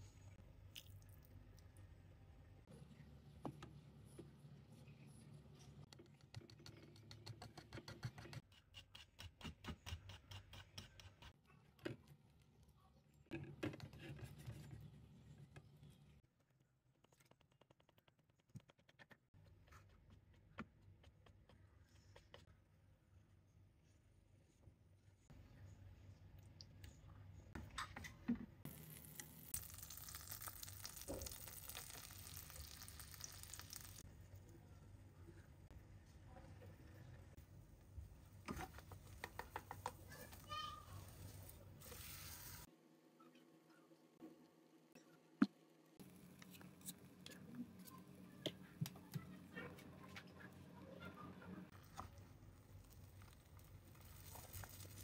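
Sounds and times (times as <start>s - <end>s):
butter sizzling in a frying pan: 28.7s - 34.0s.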